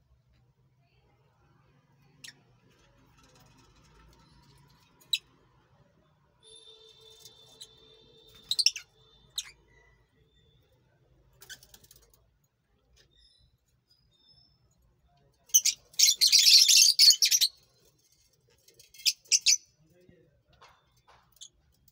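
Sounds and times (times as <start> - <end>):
lovebirds chirping: 6.5 - 10.8, 15.5 - 17.9, 18.9 - 19.6.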